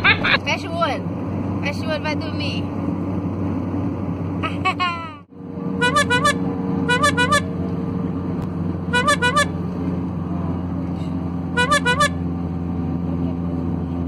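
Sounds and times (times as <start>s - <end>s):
car cabin drone: 0.0s - 14.0s
comic squeaky toots: 5.8s - 7.5s, 8.9s - 9.6s, 11.6s - 12.2s.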